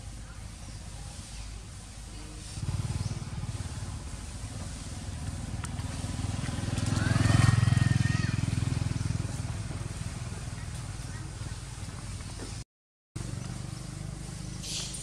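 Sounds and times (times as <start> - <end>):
vehicle engine passing by: 2.4 - 12.6.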